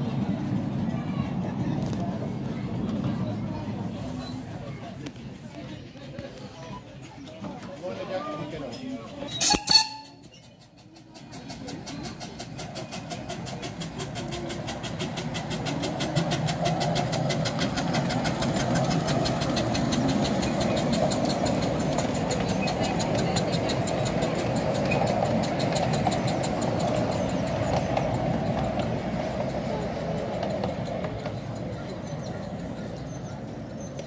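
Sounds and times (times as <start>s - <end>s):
train wheels clicking: 9.3s - 34.0s
rush of steam and running noise: 11.0s - 34.0s.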